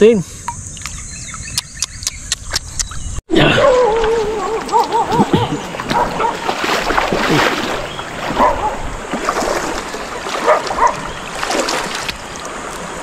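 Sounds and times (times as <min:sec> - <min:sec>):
flowing river water: 0:03.4 - 0:13.0
splashes of wading: 0:03.5 - 0:13.0.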